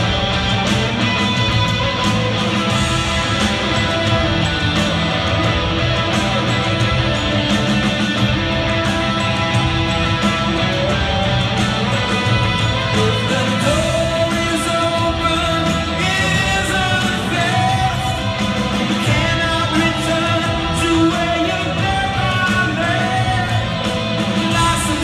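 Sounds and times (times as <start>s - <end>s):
electric guitar: 0.0s - 25.0s
live rock band: 0.0s - 25.0s
person singing: 12.9s - 25.0s.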